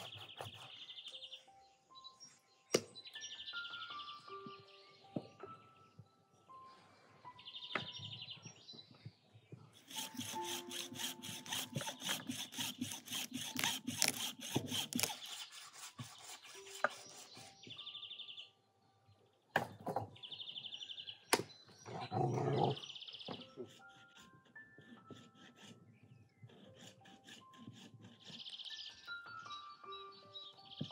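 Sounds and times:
hand saw cutting meat on bone: 0:00.0 - 0:01.0, 0:09.8 - 0:17.6, 0:23.3 - 0:29.2.

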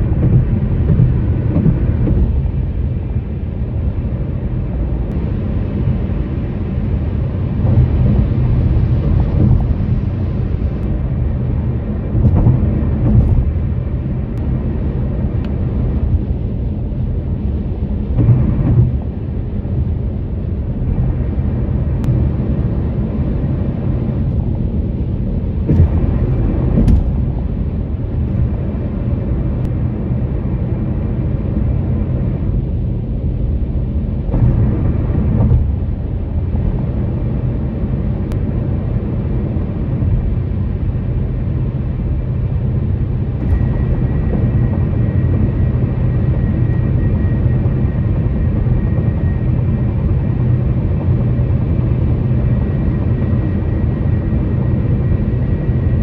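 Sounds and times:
tyres rumbling on bridge deck: 0:00.0 - 0:22.7, 0:23.5 - 0:55.9.

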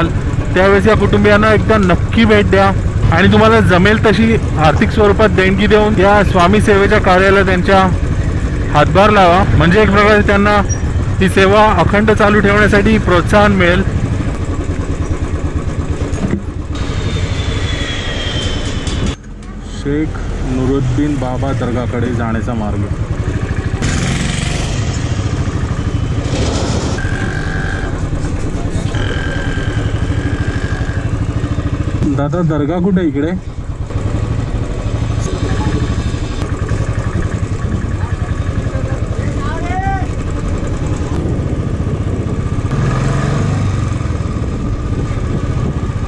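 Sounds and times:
motorcycle engine running: 0:00.0 - 0:18.1, 0:18.7 - 0:46.0
motorcycle horn: 0:27.0 - 0:32.0.

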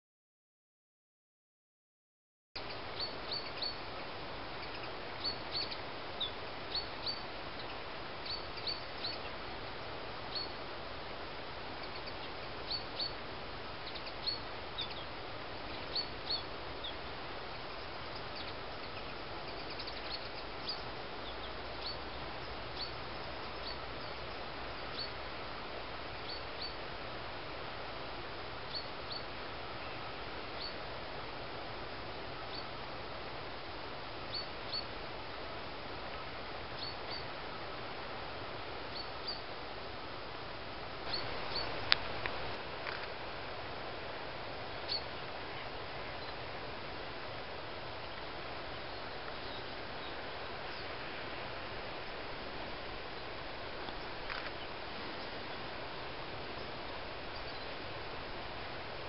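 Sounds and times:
songbird call notes: 0:02.6 - 0:27.1, 0:28.6 - 0:30.9, 0:32.3 - 0:32.9, 0:33.5 - 0:39.6, 0:40.7 - 0:43.2, 0:44.6 - 0:46.5, 0:47.5 - 0:51.0, 0:53.0 - 0:55.8, 0:56.4 - 0:57.8
outdoor hiss: 0:02.6 - 0:59.0.

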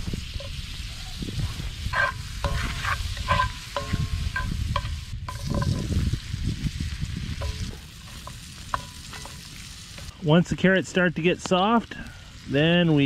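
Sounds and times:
butter sizzling in a skillet: 0:00.0 - 0:10.2.

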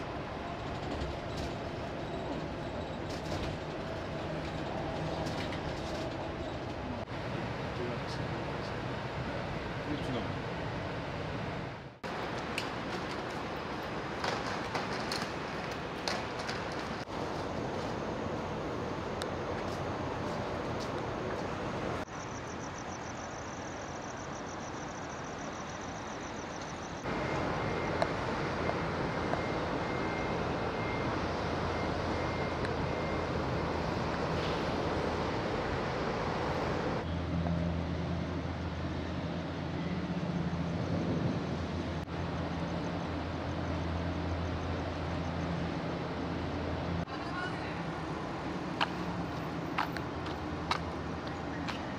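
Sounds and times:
ship machinery humming: 0:00.0 - 0:37.4.

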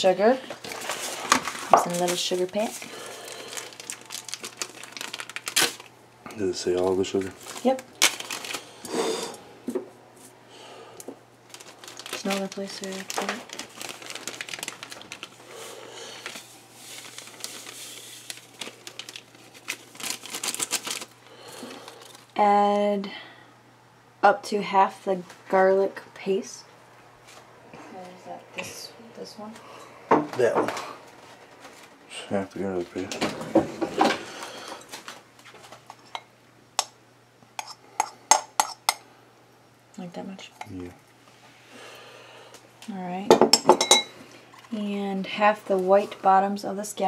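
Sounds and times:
plastic packet crinkling: 0:00.5 - 0:05.9, 0:06.6 - 0:08.9, 0:11.4 - 0:22.4.

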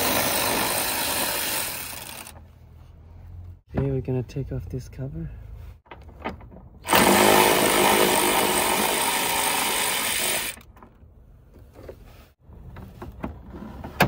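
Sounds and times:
power ratchet running: 0:00.0 - 0:02.4, 0:06.9 - 0:10.6.

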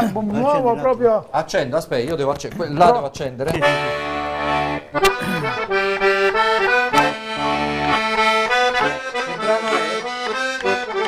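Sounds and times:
button accordion playing a tune: 0:03.6 - 0:11.0.

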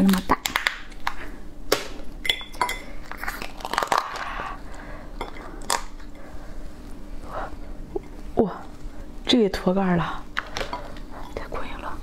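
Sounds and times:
crab shell cracking: 0:00.0 - 0:02.0, 0:03.0 - 0:04.4, 0:05.6 - 0:06.0.

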